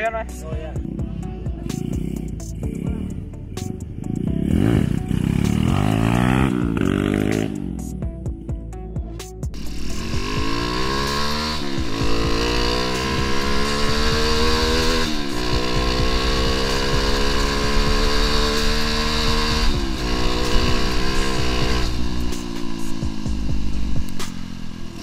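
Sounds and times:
motorcycle engine accelerating: 4.0 - 8.2, 9.5 - 25.0.

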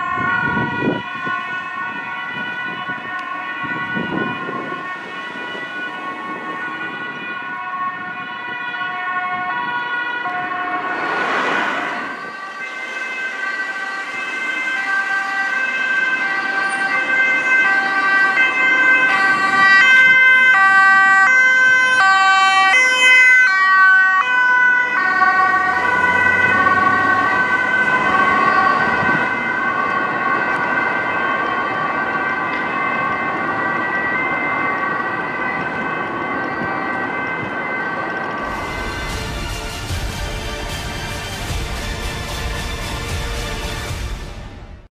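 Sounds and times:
ambulance two-tone siren: 0.0 - 44.8
traffic noise: 0.0 - 44.9
brief rush of noise: 10.5 - 13.4.

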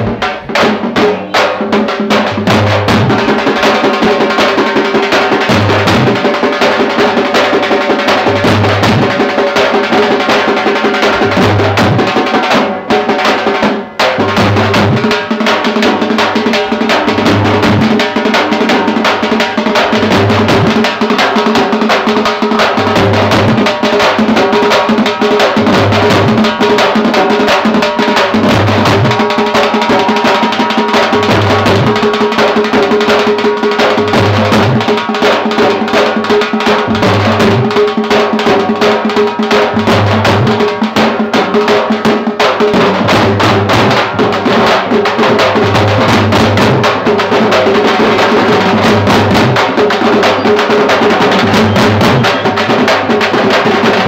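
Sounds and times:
rapid drumming: 0.0 - 54.0.

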